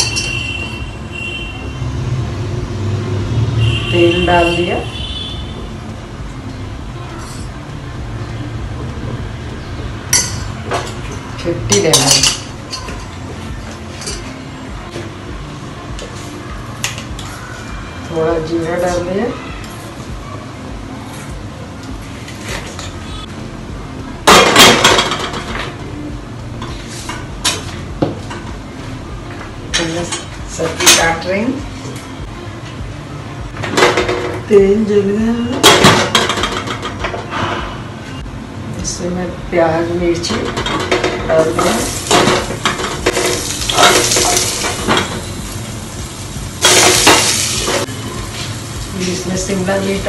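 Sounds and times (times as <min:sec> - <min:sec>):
hot oil sizzling and crackling: 0:40.6 - 0:50.0.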